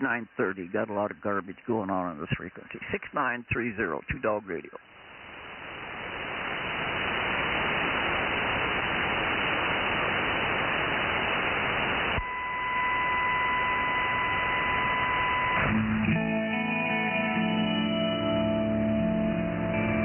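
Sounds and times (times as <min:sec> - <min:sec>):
radio static hissing: 0:00.0 - 0:15.8
steady radio whistle: 0:05.5 - 0:15.8.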